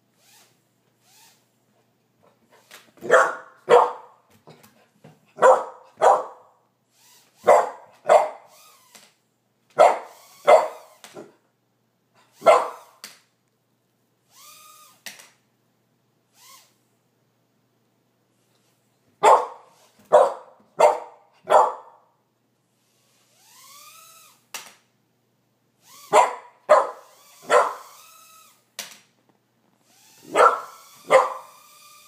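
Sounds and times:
puppy barking: 3.0s - 4.2s, 5.4s - 6.6s, 7.4s - 8.5s, 9.8s - 10.9s, 12.4s - 13.0s, 19.2s - 22.1s, 26.1s - 28.0s, 30.2s - 31.6s.

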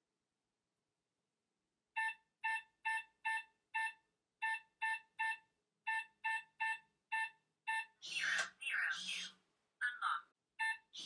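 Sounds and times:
keypad beeps: 2.0s - 8.0s.

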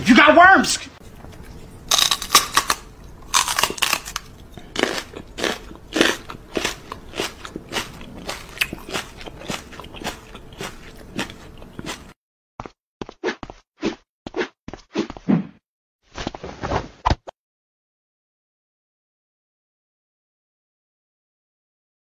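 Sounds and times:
chewing crunchy food: 1.0s - 12.2s.

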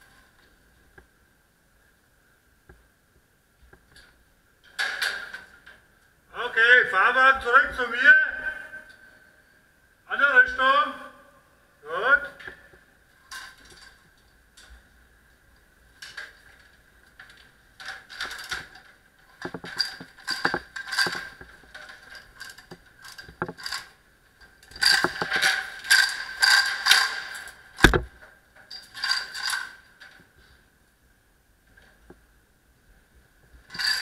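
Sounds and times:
steel chain rattling: 13.2s - 14.8s, 16.0s - 30.3s, 33.7s - 34.0s.

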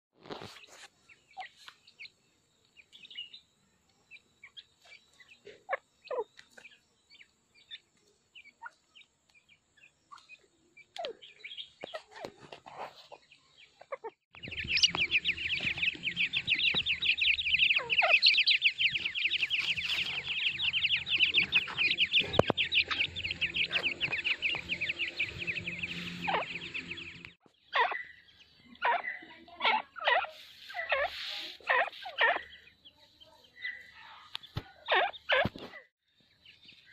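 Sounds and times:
chicks peeping: 0.2s - 36.9s
hen calling: 13.8s - 32.8s
low hum: 18.7s - 27.4s.

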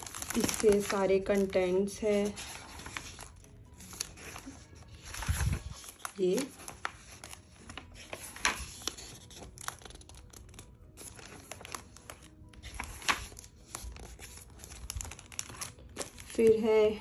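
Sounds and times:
book pages rustling: 0.0s - 16.7s.

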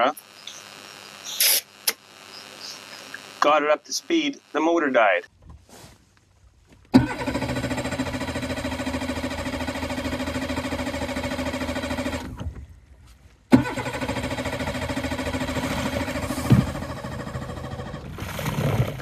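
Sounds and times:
outboard motor running: 7.0s - 12.6s, 13.6s - 19.0s
motor knock: 13.5s - 18.2s.

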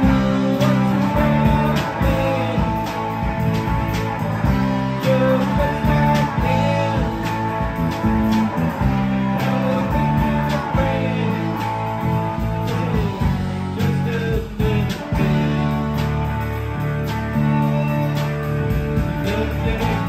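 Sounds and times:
drum kit beat: 0.0s - 20.0s
electric bass: 0.0s - 20.0s
electric guitars: 0.0s - 20.0s.

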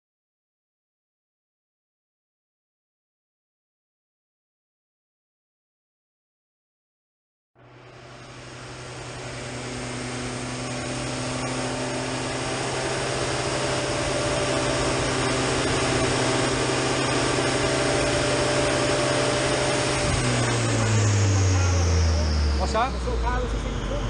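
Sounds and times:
car engine idling: 7.6s - 24.0s.

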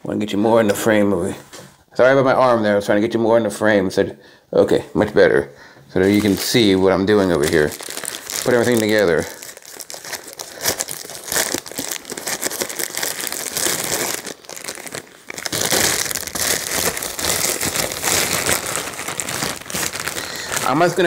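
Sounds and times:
packaging crinkling: 6.0s - 21.0s.

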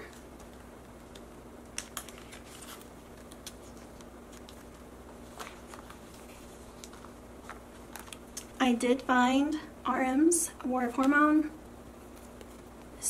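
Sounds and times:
plastic pages crinkling: 0.0s - 8.6s
plastic pocket pages ticking: 0.1s - 4.8s.

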